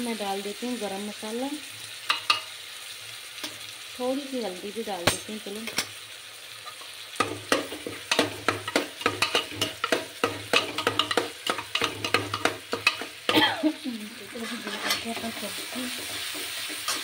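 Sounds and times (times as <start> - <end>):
hot oil sizzling: 0.0 - 17.0
metal spoon scraping a pot: 7.5 - 13.3, 14.3 - 17.0.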